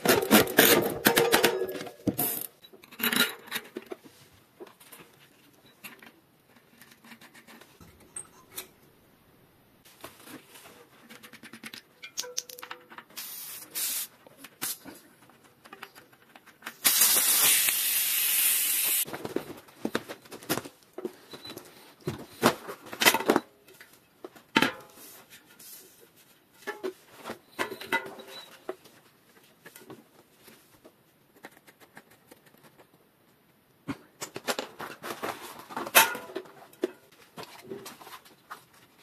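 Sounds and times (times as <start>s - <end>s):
clicks and knocks of tools: 11.1s - 13.1s
air hissing from tyre valve: 13.2s - 14.1s, 16.8s - 19.0s.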